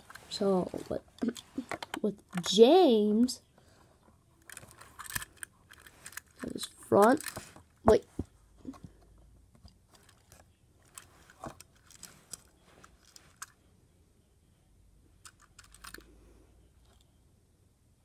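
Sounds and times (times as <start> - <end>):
toy train being handled: 0.0 - 2.6, 4.1 - 13.6, 15.2 - 16.1.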